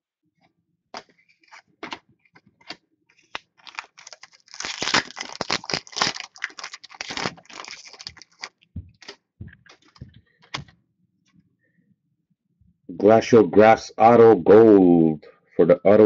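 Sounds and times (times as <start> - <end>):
foil pack tearing and crinkling: 3.3 - 8.6.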